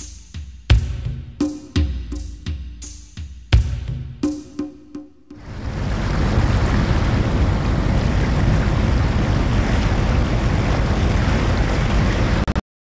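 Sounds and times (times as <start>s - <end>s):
wind buffeting microphone: 5.4s - 12.5s
water churning in boat wake: 5.4s - 12.6s.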